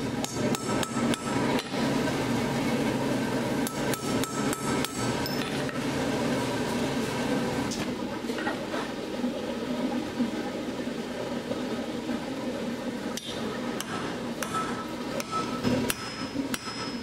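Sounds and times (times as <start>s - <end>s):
steady background hum: 0.0s - 17.0s
hammer striking steel on anvil: 0.2s - 1.8s, 3.6s - 5.8s, 13.2s - 17.0s.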